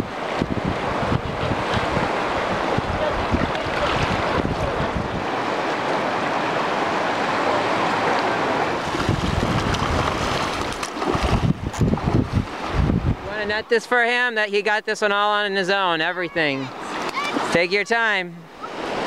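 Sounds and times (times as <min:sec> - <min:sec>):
wind buffeting microphone: 0:00.0 - 0:05.6, 0:08.7 - 0:13.6
river water rushing: 0:00.0 - 0:19.0.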